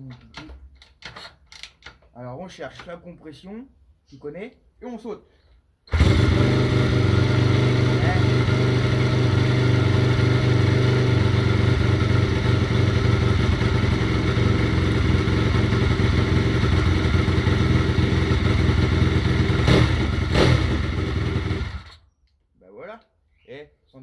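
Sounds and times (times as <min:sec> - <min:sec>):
dirt bike engine running: 0:05.9 - 0:21.9.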